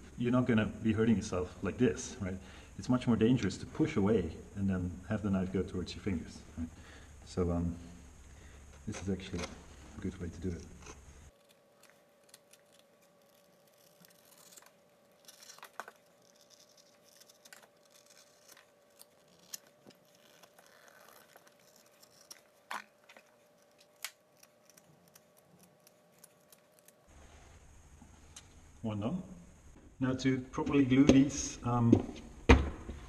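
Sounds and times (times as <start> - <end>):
leather clicks and rustles: 15.2 - 23.8.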